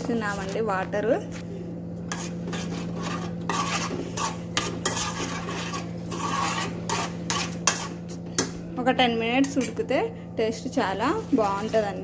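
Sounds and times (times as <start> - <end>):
spoon scraping metal pan: 2.0 - 8.4.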